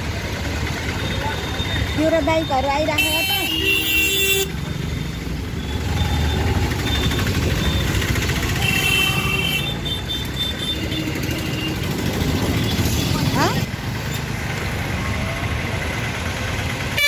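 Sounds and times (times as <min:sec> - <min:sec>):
motorcycle engines rumbling: 0:00.0 - 0:17.0.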